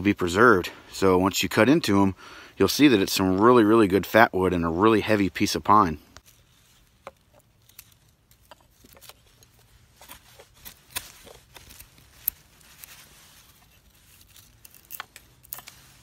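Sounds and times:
knife cutting into wood: 7.1 - 16.0.

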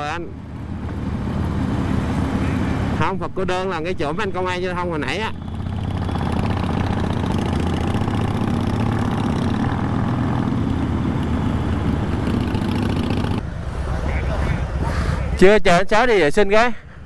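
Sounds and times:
higher noise above engine: 0.0 - 15.4
motorcycle engine running: 5.3 - 13.4.

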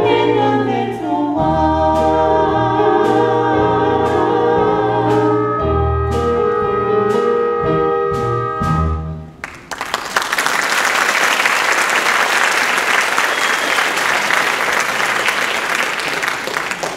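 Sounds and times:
audience applause: 9.4 - 16.9.

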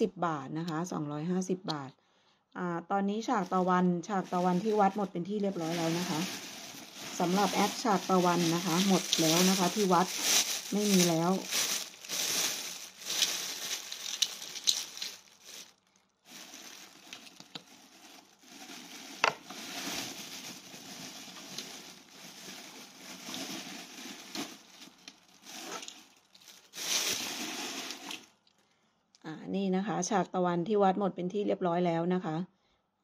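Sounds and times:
plastic packaging crinkling: 4.2 - 28.5.

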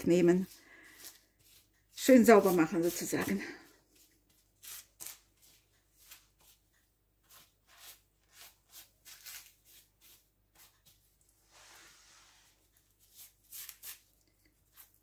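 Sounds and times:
hands sweeping crumbs: 7.3 - 12.6.

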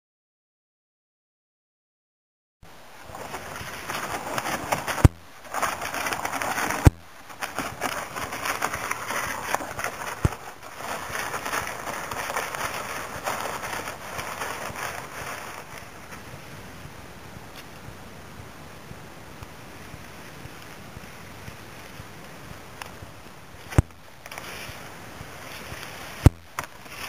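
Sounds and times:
kayak dragged over stones: 3.0 - 16.5, 23.6 - 27.0
footsteps on gravel: 3.1 - 16.6.

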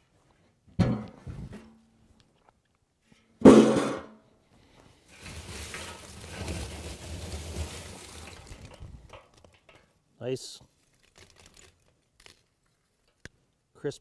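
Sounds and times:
charcoal rustling and crunching: 5.0 - 9.9, 10.7 - 13.0.

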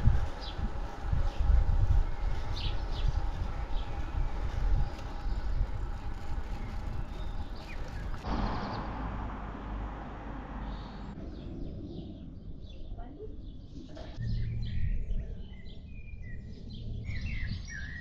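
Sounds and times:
wind noise on microphone: 0.0 - 9.2, 14.0 - 18.0.

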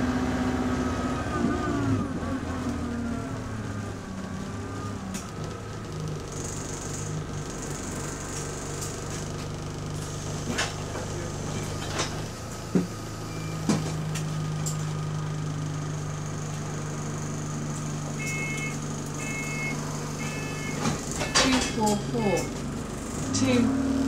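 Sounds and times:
bus engine low moan: 0.0 - 24.0
short electronic beeps: 18.2 - 21.6.

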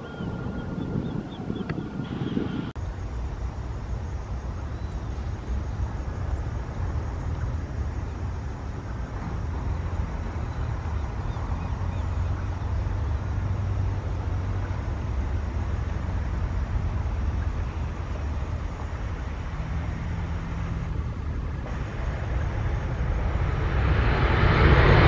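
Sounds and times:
jet engines rumbling: 0.0 - 25.0.

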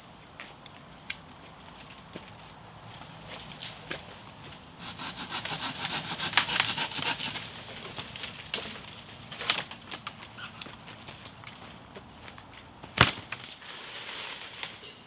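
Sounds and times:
twigs cracking and snapping: 0.6 - 4.6, 6.3 - 13.7
branch dragged through undergrowth: 7.0 - 15.0.

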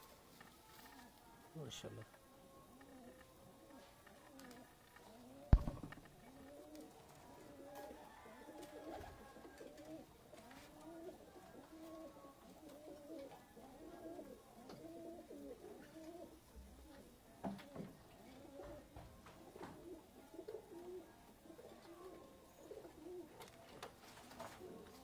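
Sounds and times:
pigeons cooing: 2.5 - 25.0
sharp knock: 5.5 - 6.1.

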